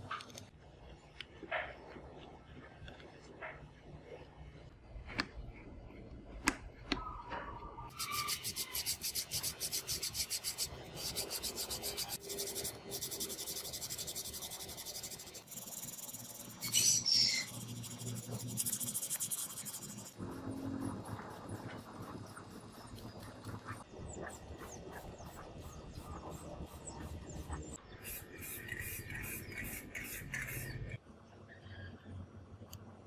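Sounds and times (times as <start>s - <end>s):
hand sanding plastic: 7.9s - 16.6s, 17.4s - 20.2s.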